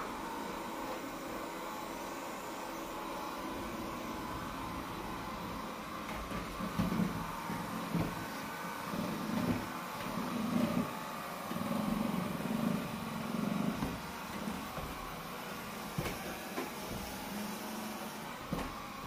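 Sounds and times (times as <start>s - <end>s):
robot vacuum whirring: 0.0s - 19.0s.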